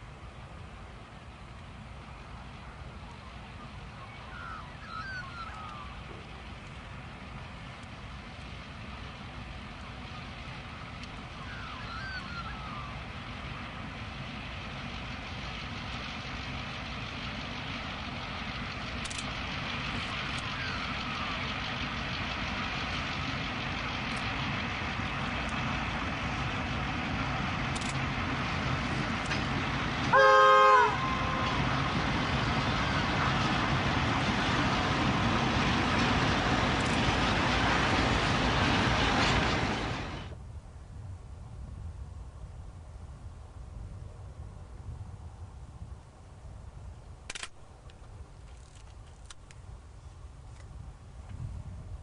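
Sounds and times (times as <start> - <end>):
train wheels rumbling: 0.0 - 40.5
diesel locomotive engine drone: 0.0 - 52.0
locomotive horn blast: 30.1 - 31.7.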